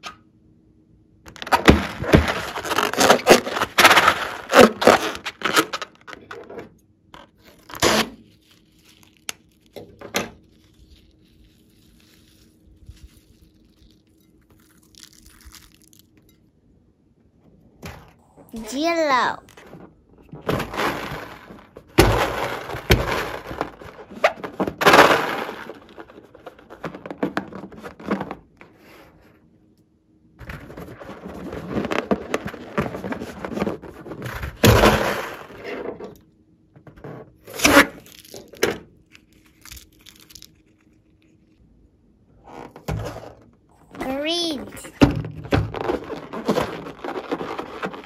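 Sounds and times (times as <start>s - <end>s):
rubber balloon rubbing and crinkling: 1.4s - 6.2s, 7.3s - 9.7s, 42.4s - 48.0s.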